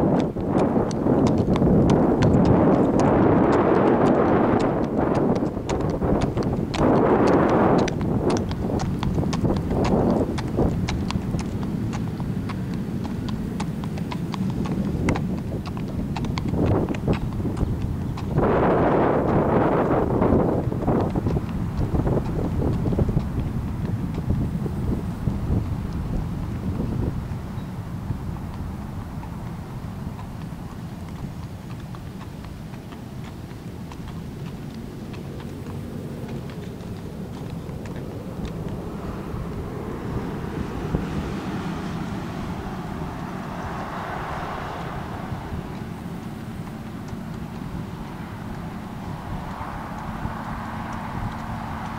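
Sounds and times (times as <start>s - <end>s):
hooves clip-clopping on asphalt: 0.0s - 51.9s
low steady rumble: 0.0s - 51.9s
low rumble: 35.4s - 50.3s.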